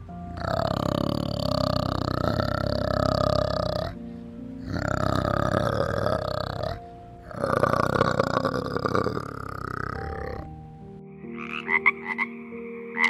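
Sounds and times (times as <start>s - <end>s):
soft background music: 0.0s - 13.0s
orangutan calling: 4.6s - 10.5s.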